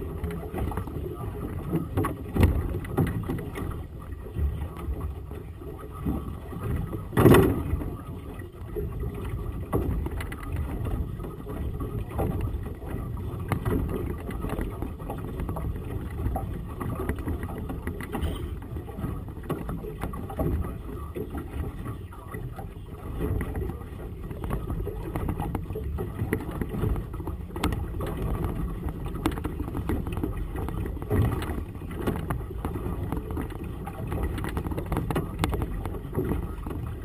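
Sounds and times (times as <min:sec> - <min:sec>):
water slapping boat hull: 0:00.0 - 0:37.0.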